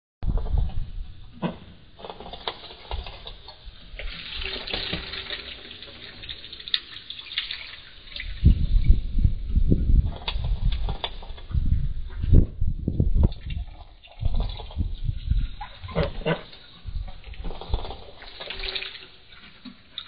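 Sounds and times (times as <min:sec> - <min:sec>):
water sloshing and splashing: 0:01.4 - 0:12.4, 0:13.1 - 0:20.0
loud low thumps and knocks: 0:11.5 - 0:13.4.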